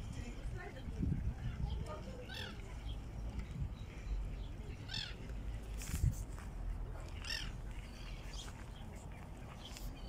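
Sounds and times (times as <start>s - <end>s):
wind rumble on microphone: 0.0s - 4.5s, 5.6s - 6.5s.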